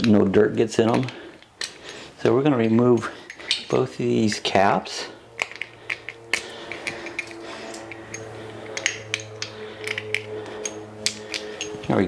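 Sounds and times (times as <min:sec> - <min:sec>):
plastic caps clicking on metal fitting: 0:00.8 - 0:01.8, 0:05.4 - 0:11.9.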